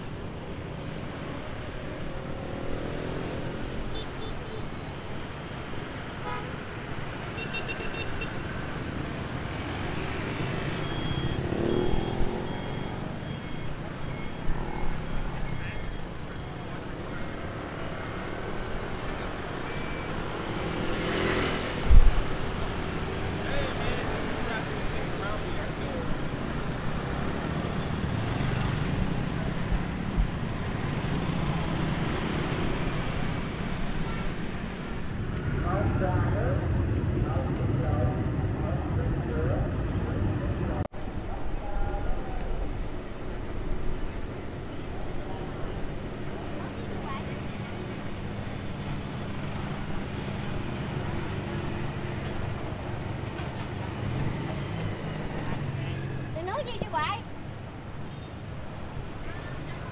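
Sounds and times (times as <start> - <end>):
traffic rumble: 0.0 - 59.9.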